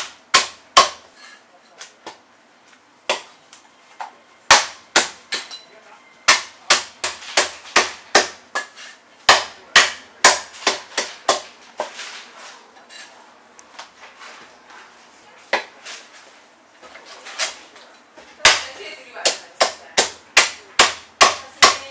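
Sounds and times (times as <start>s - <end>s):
cleaver chopping on wooden block: 0.0s - 1.0s.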